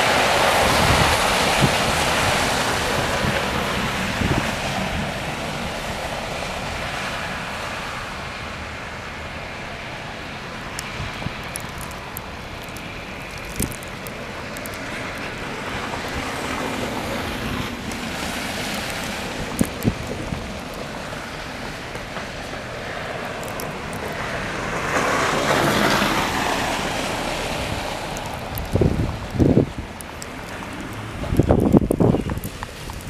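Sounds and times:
wind on microphone: 0:00.0 - 0:07.0, 0:10.8 - 0:21.9, 0:26.5 - 0:33.0
tyres swishing through slush: 0:00.0 - 0:33.0.

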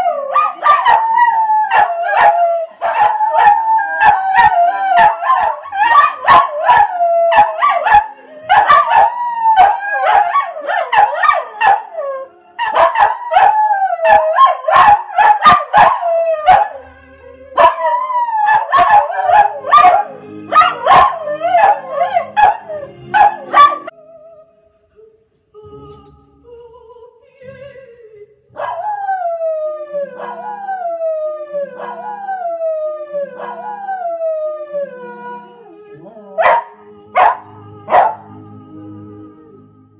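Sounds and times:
dog howling: 0:00.0 - 0:16.8, 0:17.6 - 0:23.9, 0:28.6 - 0:38.2
operatic music with singing: 0:35.0 - 0:39.9.

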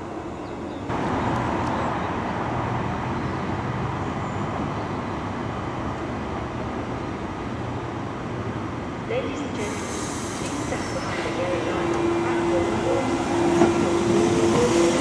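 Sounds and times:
train rushing noise: 0:00.9 - 0:15.0
train mechanical hum: 0:07.2 - 0:15.0.

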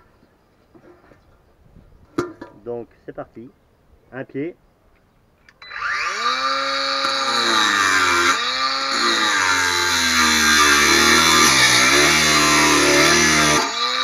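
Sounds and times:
angle grinder cutting steel: 0:05.6 - 0:14.0.

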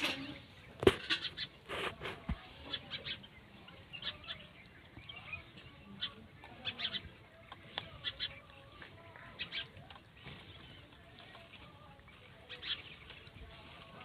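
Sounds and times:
puppies chewing and crunching: 0:04.7 - 0:14.0.

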